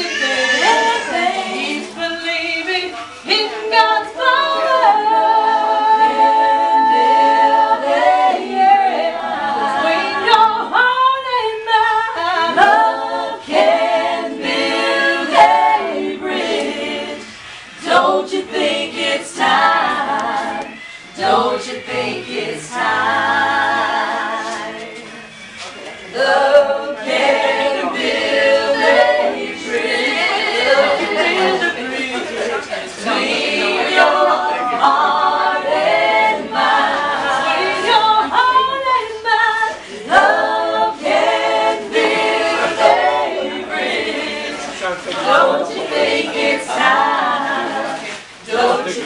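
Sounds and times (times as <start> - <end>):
group singing religious song: 0.0 - 49.0.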